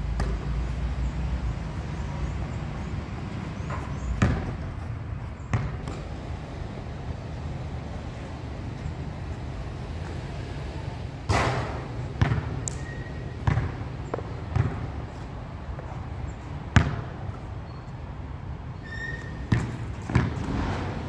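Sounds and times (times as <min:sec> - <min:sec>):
basketball bouncing on hard court: 0:02.8 - 0:06.2, 0:11.3 - 0:15.2, 0:16.7 - 0:17.2, 0:19.3 - 0:20.8.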